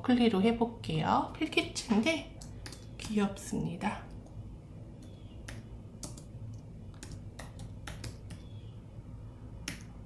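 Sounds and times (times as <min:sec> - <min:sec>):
keyboard keys clicking: 0:05.0 - 0:06.3, 0:06.9 - 0:08.5.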